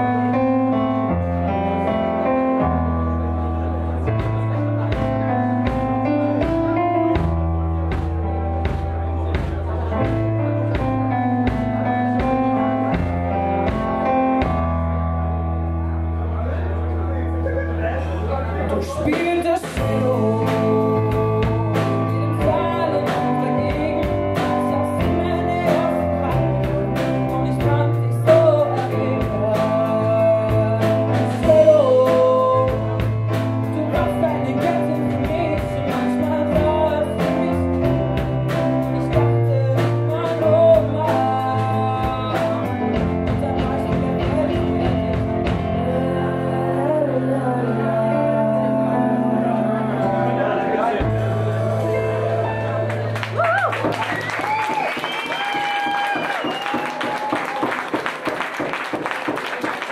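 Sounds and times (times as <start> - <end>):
keyboard: 0.0 - 54.6
steady drum beat: 4.1 - 14.9, 19.0 - 45.9, 51.0 - 52.1
woman singing: 18.7 - 53.1.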